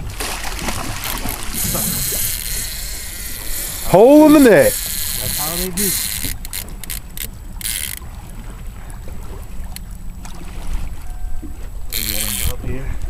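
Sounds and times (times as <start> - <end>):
wind rumbling on microphone: 0.0 - 3.9
choppy water: 0.0 - 13.0.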